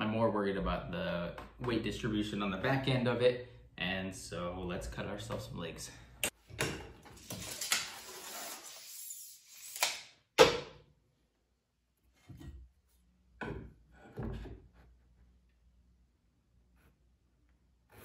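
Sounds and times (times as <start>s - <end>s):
tape measure snapping back: 7.2s - 10.2s
tape measure rubbing on board: 7.4s - 10.0s.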